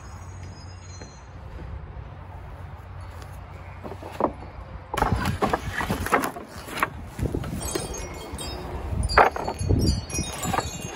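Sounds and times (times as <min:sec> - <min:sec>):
faint wind chime: 0:00.0 - 0:01.5, 0:07.4 - 0:10.9
wooden planks knocking together: 0:03.8 - 0:07.0, 0:09.2 - 0:09.6.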